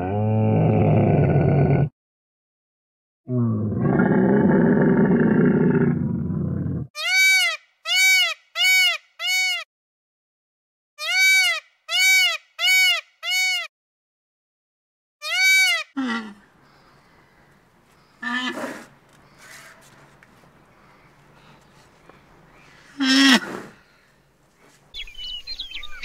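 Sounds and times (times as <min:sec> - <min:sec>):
peacock crying: 0:07.0 - 0:09.6, 0:11.0 - 0:13.7, 0:15.2 - 0:16.4, 0:22.6 - 0:23.6.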